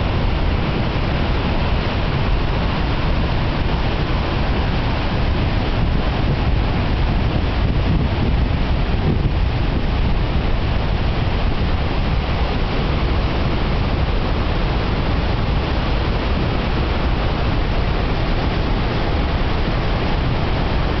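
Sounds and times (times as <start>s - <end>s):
river rushing through rapids: 0.0s - 21.0s.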